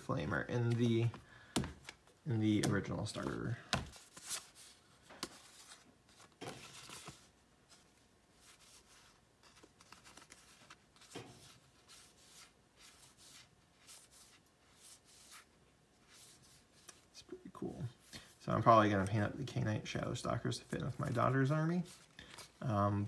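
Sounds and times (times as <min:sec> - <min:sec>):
cards rustling and clicking: 0:00.5 - 0:15.4, 0:20.5 - 0:22.7.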